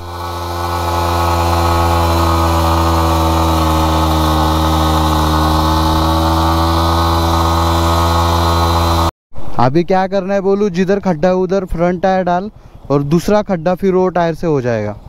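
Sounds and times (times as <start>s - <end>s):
motorcycle engine at high revs: 0.0s - 9.1s.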